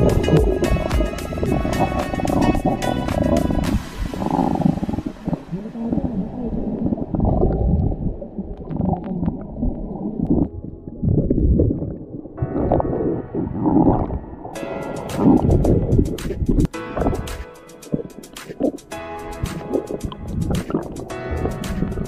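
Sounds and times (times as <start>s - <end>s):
muffled underwater gurgling: 0.0s - 14.5s.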